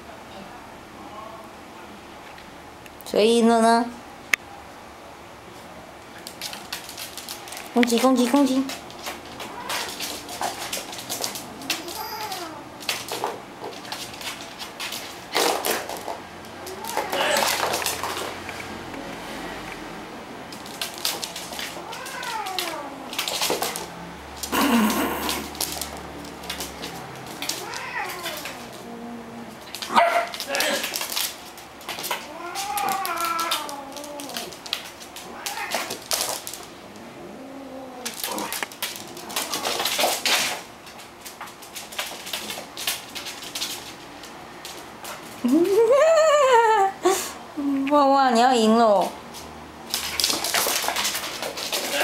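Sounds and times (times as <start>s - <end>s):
animals scuffling on wooden floor: 6.1s - 18.7s, 20.5s - 28.9s, 38.1s - 45.4s, 49.3s - 52.0s
cat yowling: 9.4s - 10.2s, 11.7s - 12.7s, 16.6s - 17.8s, 21.8s - 23.2s, 26.9s - 30.9s, 32.2s - 34.6s, 35.2s - 36.0s.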